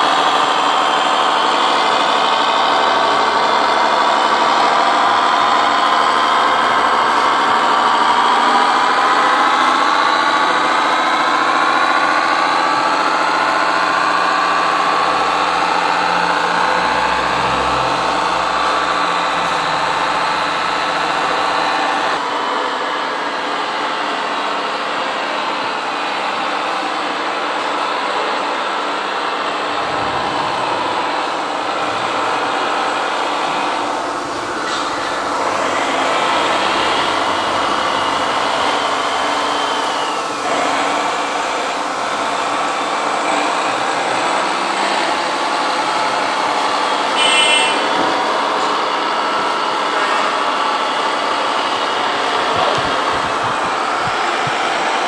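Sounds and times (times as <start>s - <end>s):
short beep: 47.2s - 47.8s.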